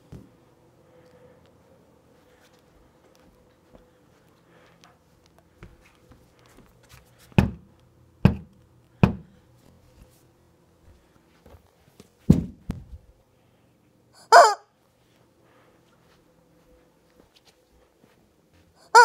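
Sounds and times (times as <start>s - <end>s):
knocks on a door: 8.2s - 9.3s
heavy thump: 12.3s - 13.0s.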